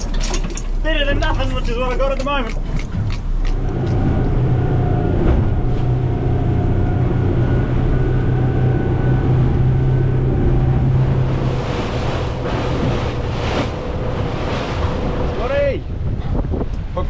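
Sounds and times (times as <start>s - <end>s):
outboard motors droning: 0.0s - 17.0s
water rushing past hull: 0.0s - 17.0s.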